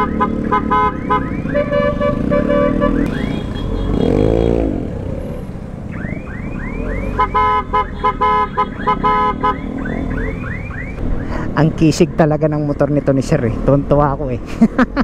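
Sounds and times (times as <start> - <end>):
electronic horn chirps: 0.0 - 4.3, 7.0 - 10.0
scooter engine and road noise: 0.0 - 15.0.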